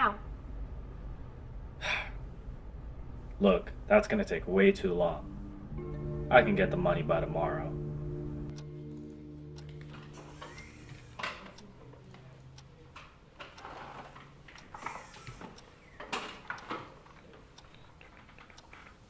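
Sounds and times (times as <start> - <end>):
background music: 3.3 - 11.9.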